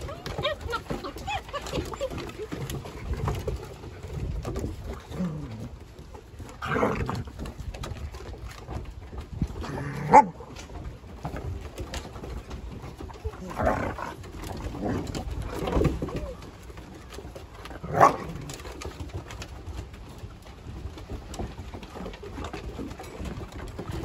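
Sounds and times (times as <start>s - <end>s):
dogs growling and whining: 4.8s - 5.8s, 6.5s - 7.5s, 9.6s - 10.5s, 13.3s - 16.5s, 17.6s - 18.8s.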